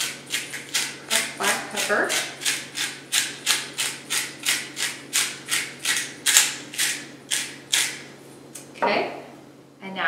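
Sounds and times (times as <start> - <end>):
pepper mill grinding: 0.0 - 8.0.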